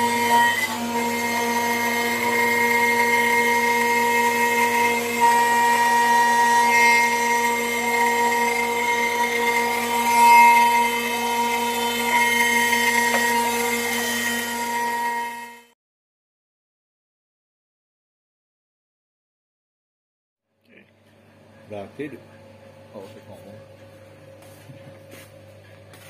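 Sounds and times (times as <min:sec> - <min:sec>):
router spindle whining: 0:00.0 - 0:15.7.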